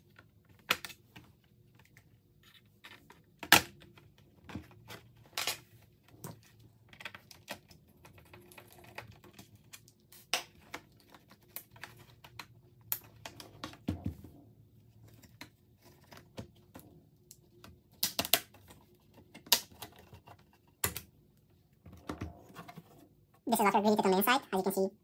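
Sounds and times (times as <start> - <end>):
plastic clips clicking and snapping: 17.9 - 18.7.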